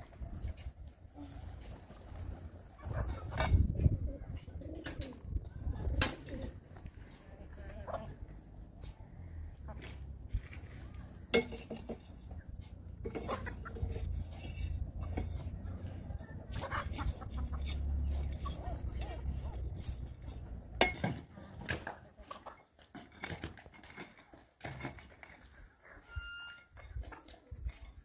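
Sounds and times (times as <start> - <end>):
kitchenware clinking and knocking: 11.3 - 12.2.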